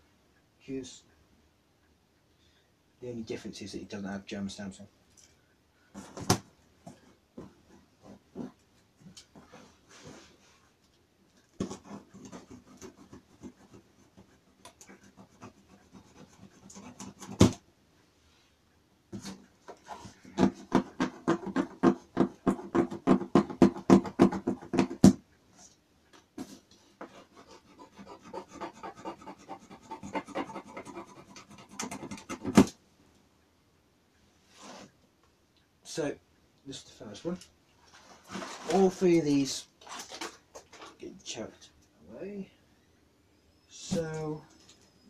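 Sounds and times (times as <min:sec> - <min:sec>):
knife sawing plastic and cardboard: 0:11.6 - 0:17.6, 0:19.2 - 0:25.0, 0:27.0 - 0:32.7.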